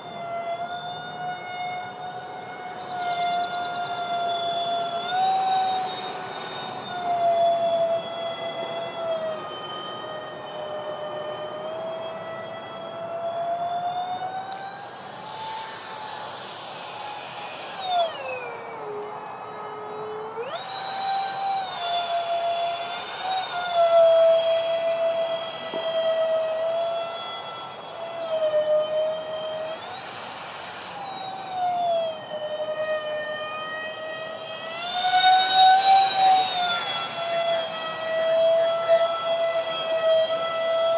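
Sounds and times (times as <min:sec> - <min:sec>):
model jet fans whining: 0:00.0 - 0:40.9
rush of air: 0:14.9 - 0:19.4, 0:20.5 - 0:26.6, 0:29.3 - 0:31.8, 0:34.3 - 0:40.9.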